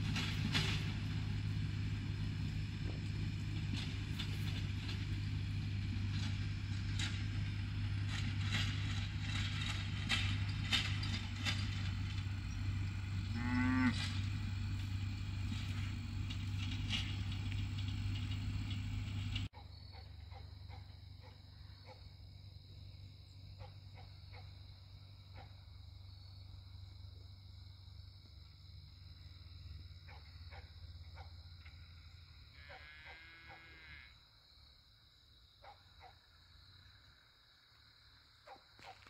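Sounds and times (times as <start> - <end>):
low engine hum: 0.0 - 32.7
cow mooing: 12.9 - 14.8, 32.6 - 34.2.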